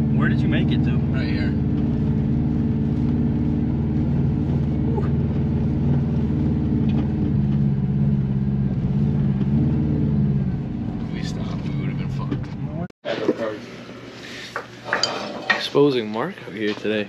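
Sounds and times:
car engine running at low revs: 0.0 - 12.9.

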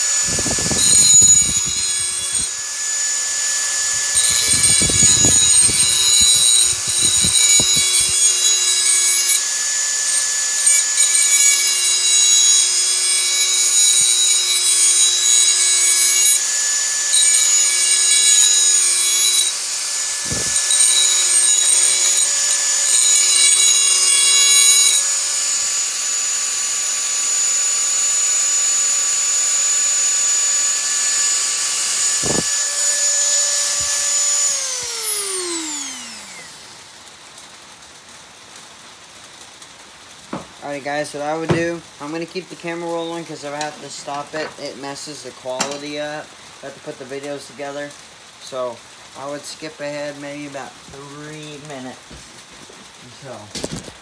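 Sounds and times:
rotary tool grinding whine: 0.0 - 37.6
handling knocks: 40.3 - 40.6.

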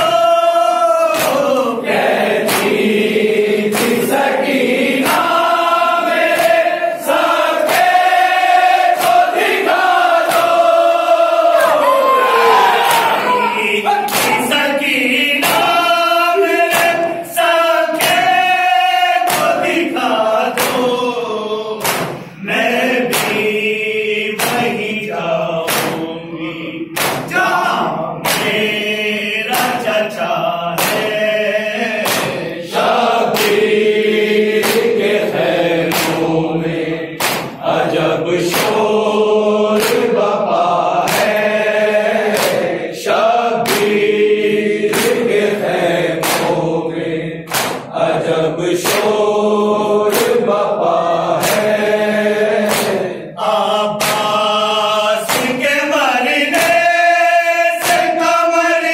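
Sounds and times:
men chanting in unison: 0.0 - 58.9
hands slapping chest: 1.1 - 1.6, 2.4 - 2.9, 3.7 - 4.3, 4.9 - 5.5, 6.1 - 10.7, 14.1 - 14.6, 15.4 - 15.8, 18.0 - 18.5, 19.3 - 19.8, 20.5 - 20.9, 21.8 - 22.3, 23.1 - 23.6, 24.4 - 24.8, 25.7 - 26.1, 27.0 - 27.3, 28.2 - 28.7, 29.5 - 29.9, 30.8 - 31.2, 32.0 - 32.6, 33.3 - 33.7, 34.6 - 35.0, 35.8 - 36.3, 37.2 - 37.6, 38.4 - 38.9, 39.8 - 40.2, 41.0 - 41.6, 42.2 - 42.7, 43.6 - 44.1, 44.9 - 45.3, 46.2 - 46.6, 47.5 - 47.9, 48.8 - 49.2, 50.1 - 50.5, 51.3 - 51.9, 52.6 - 53.1, 54.0 - 54.6, 55.2 - 55.7, 56.5 - 56.9, 57.8 - 58.2.

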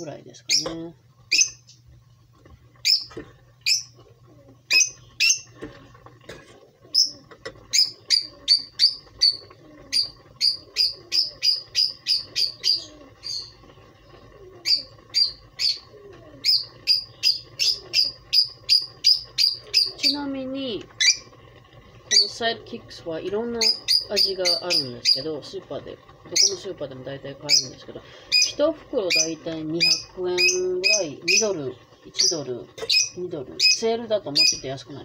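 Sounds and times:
small bird chirping: 2.8 - 4.0, 4.7 - 5.5, 6.9 - 20.3, 23.5 - 25.3, 27.4 - 34.7.

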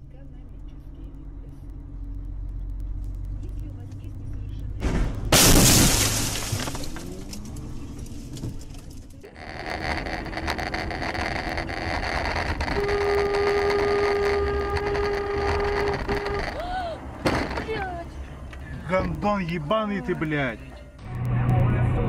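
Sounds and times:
road and engine noise: 0.0 - 22.0
car crash bang: 4.8 - 8.7.

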